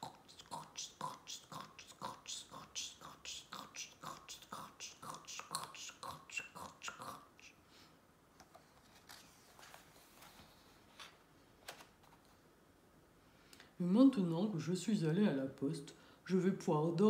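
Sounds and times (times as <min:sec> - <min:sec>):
soft hissing mouth sounds: 0:00.0 - 0:07.7
paper page rustling: 0:08.4 - 0:12.4.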